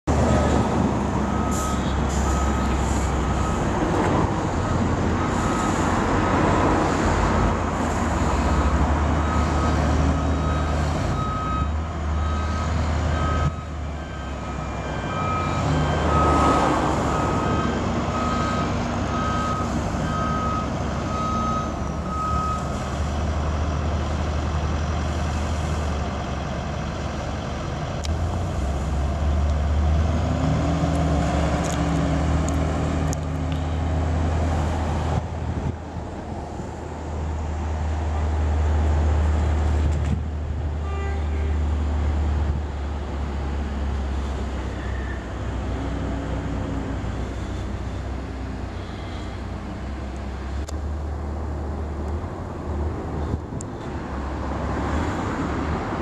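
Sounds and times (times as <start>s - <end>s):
diesel engine rumbling: 0.0s - 56.0s
reversing alarm beeps: 1.2s - 3.8s, 9.2s - 22.8s.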